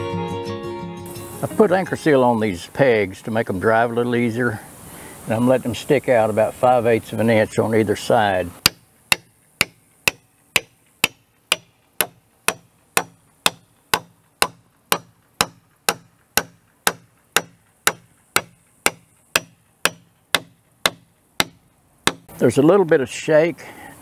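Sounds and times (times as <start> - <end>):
hammer driving wooden peg: 8.6 - 22.3.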